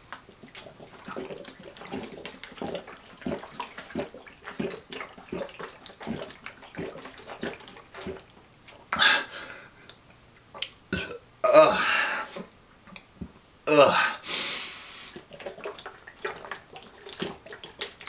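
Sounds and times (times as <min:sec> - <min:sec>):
person gulping liquid: 0:00.0 - 0:09.1, 0:10.5 - 0:13.0, 0:15.1 - 0:18.0
loud breath: 0:14.0 - 0:15.2.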